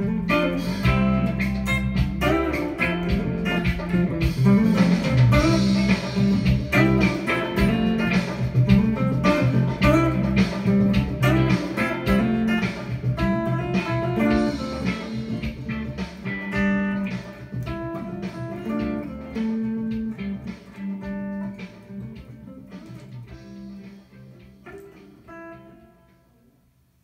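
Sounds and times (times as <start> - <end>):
electric guitar playing gospel tune: 0.0 - 26.6.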